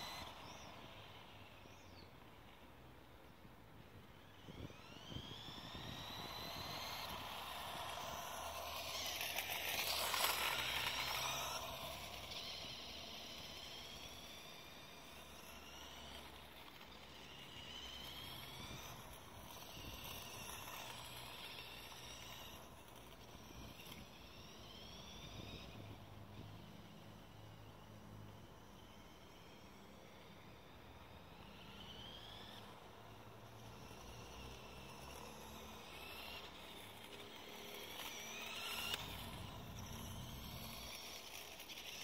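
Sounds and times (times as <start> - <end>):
electric motor whining: 0.0 - 2.6, 4.0 - 42.0
tyre noise on asphalt: 4.2 - 25.8, 31.4 - 42.0.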